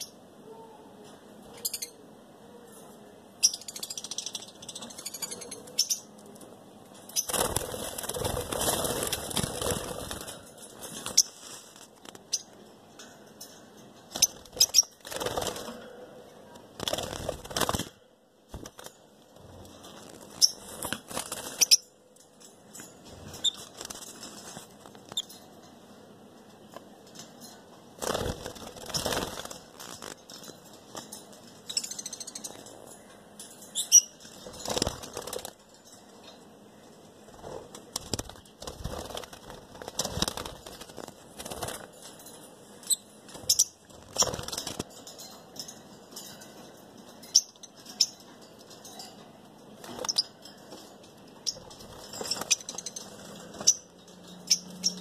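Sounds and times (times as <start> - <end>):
birds flapping wings: 7.2 - 12.2, 14.2 - 15.9, 16.7 - 19.0, 19.9 - 21.8, 28.0 - 30.3, 34.3 - 35.7, 37.4 - 42.3, 43.4 - 45.0.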